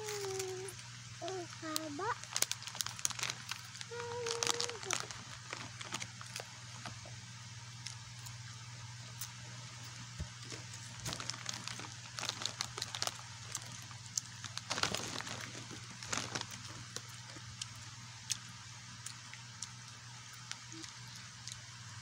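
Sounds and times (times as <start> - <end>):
steady low hum: 0.0 - 22.0
crunchy chips being eaten: 2.2 - 7.0, 9.1 - 21.9.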